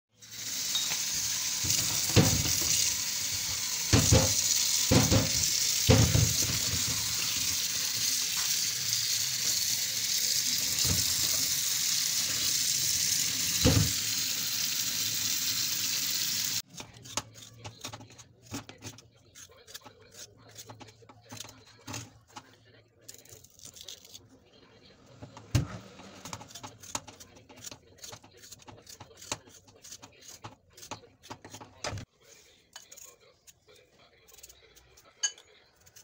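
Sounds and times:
tap water running onto potatoes: 0.2 - 16.6.

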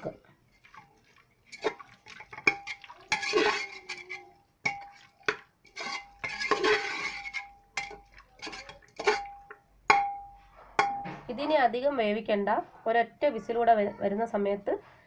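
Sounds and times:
spoon scraping pot: 0.0 - 11.3
spoon clinking on metal pot: 1.5 - 11.3.

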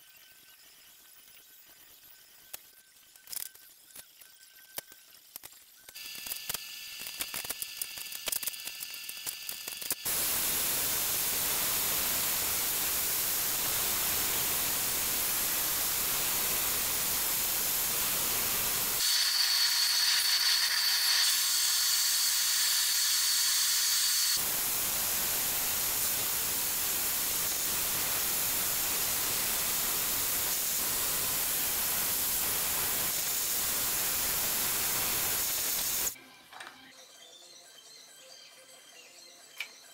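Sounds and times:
dust extraction hiss: 6.0 - 36.2.

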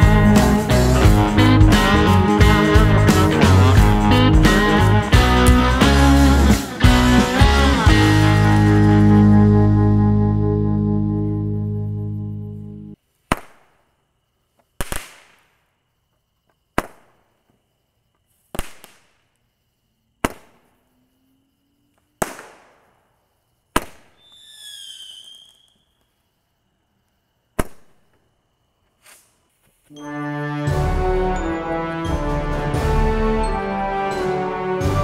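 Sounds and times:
roman candle pops with hiss: 14.8 - 15.6
short chirping whistle: 24.2 - 26.1.

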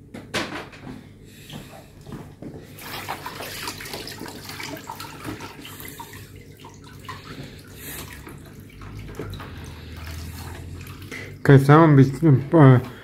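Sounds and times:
mop sloshing in bucket of water: 2.6 - 13.0.

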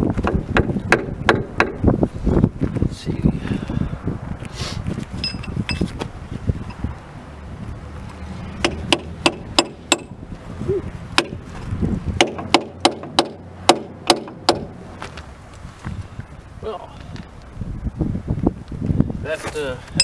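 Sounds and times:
hammer striking steel: 8.6 - 10.2, 12.2 - 14.7.

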